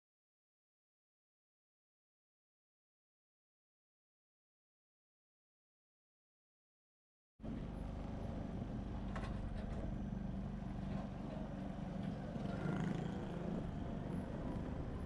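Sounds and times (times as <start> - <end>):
moving vehicle rumble: 7.4 - 15.0.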